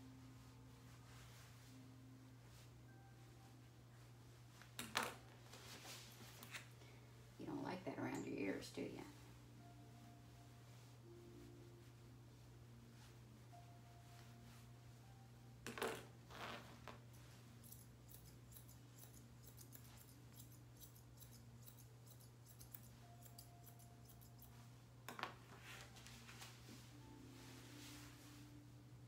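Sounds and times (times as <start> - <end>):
scissors snipping hair: 17.6 - 24.5.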